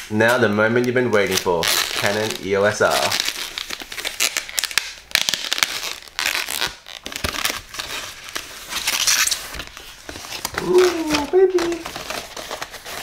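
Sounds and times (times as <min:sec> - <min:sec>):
plastic bag crinkling: 0:00.3 - 0:13.0.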